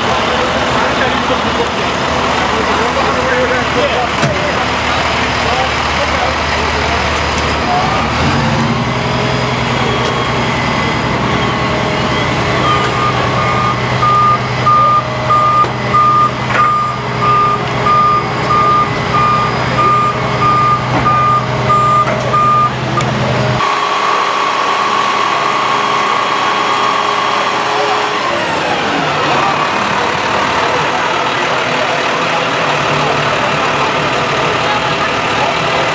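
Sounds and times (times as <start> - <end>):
diesel engine running: 0.0 - 35.9
reversing alarm beeping: 9.6 - 28.1.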